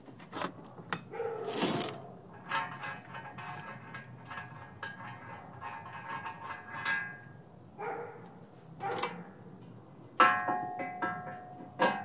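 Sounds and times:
steel tubing clanking: 0:00.3 - 0:07.4.

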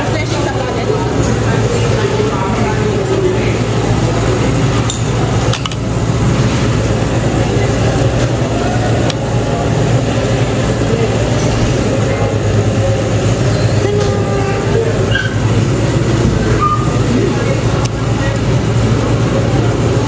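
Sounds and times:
murmured chatter: 0:00.0 - 0:20.0
utensils clinking on dishes: 0:00.1 - 0:05.9.

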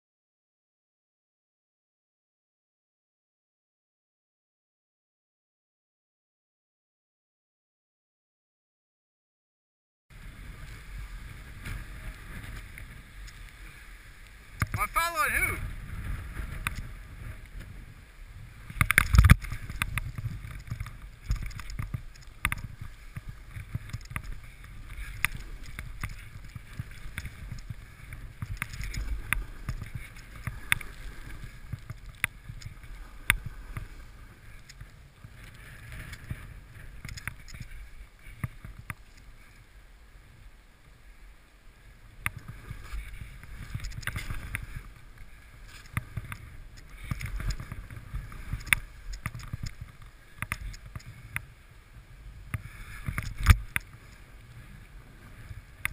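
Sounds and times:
snowboard rushing through powder: 0:10.1 - 0:21.3
snowboard knocks and scrapes: 0:18.6 - 0:33.9, 0:42.2 - 0:51.5.

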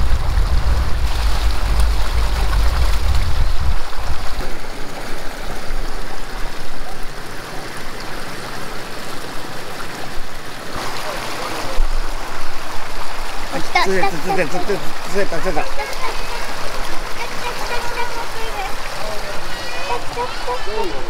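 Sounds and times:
deep rumble: 0:00.0 - 0:04.8
water splashing over weir: 0:00.0 - 0:21.0.

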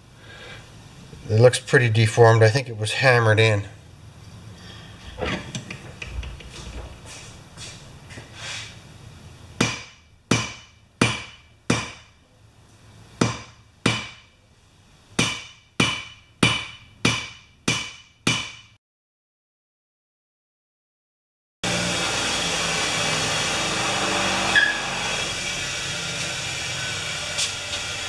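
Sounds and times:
hammer striking metal on anvil: 0:09.6 - 0:12.1, 0:13.2 - 0:14.3, 0:15.2 - 0:18.8.

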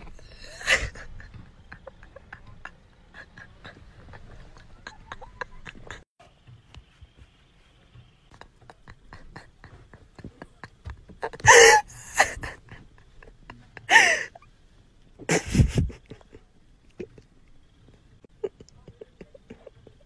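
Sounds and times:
breathy gasps of laughter: 0:00.0 - 0:06.0, 0:11.2 - 0:14.5.

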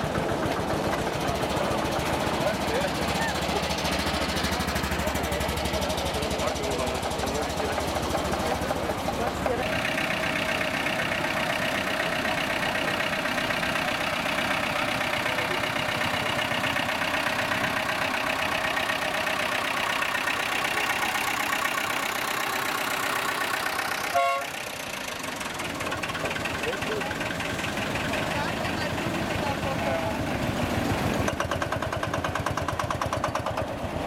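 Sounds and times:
tractor diesel engine running: 0:00.0 - 0:34.0
horn toot: 0:24.1 - 0:24.6.

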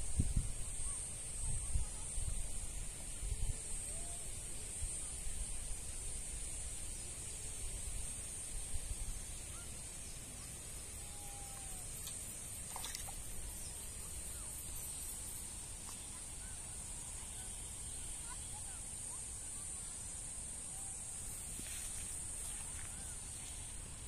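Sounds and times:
high-pitched hiss: 0:00.0 - 0:24.0
faint bird chirps: 0:08.8 - 0:24.0.

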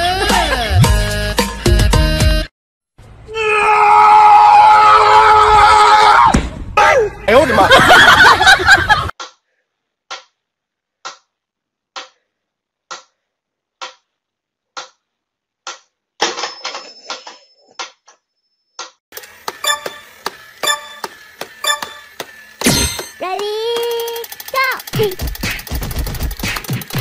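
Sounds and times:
toy clicking and whirring: 0:19.1 - 0:27.0
metronome ticking: 0:19.6 - 0:22.1.

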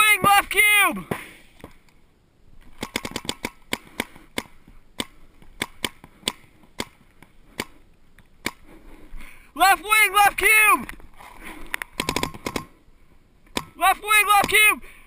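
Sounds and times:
paintball markers firing: 0:02.7 - 0:07.0.

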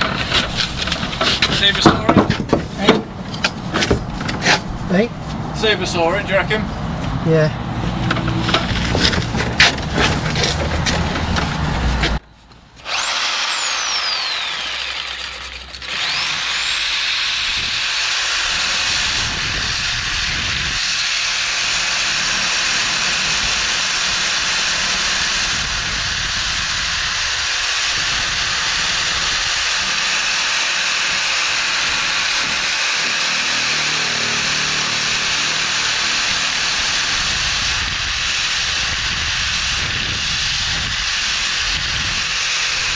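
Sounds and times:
angle grinder whining: 0:12.8 - 0:42.9
grinder cutting hiss: 0:12.8 - 0:42.9.

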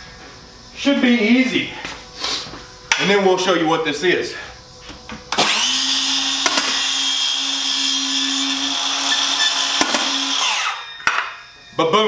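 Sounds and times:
circular saw cutting cardboard: 0:05.4 - 0:10.9.

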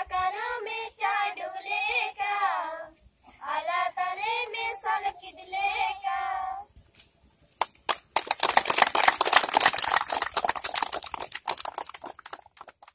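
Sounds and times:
children singing: 0:00.0 - 0:06.6
people clapping: 0:07.6 - 0:12.9.

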